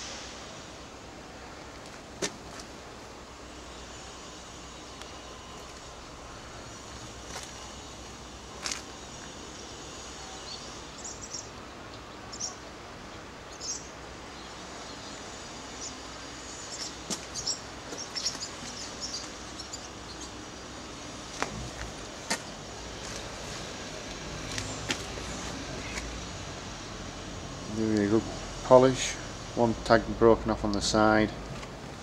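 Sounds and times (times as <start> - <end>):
bird chirps: 10.5 - 12.7, 13.5 - 20.4.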